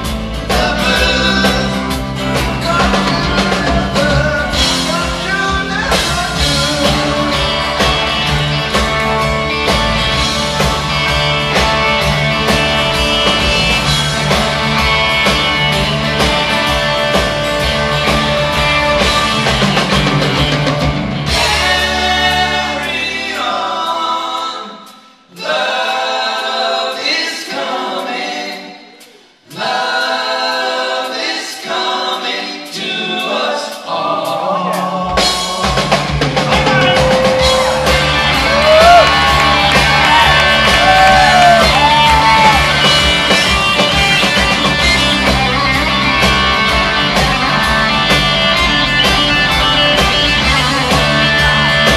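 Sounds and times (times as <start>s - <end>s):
live rock band playing: 0.0s - 23.7s, 34.6s - 51.9s
vocal harmonies: 0.0s - 51.9s
lead guitar bending notes: 39.3s - 51.9s.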